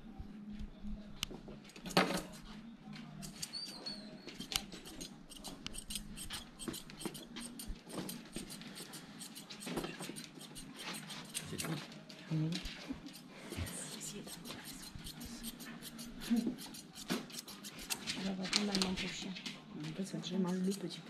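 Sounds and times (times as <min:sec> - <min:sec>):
scissors snipping through fur: 0:03.2 - 0:11.9, 0:13.0 - 0:19.0, 0:20.3 - 0:21.0.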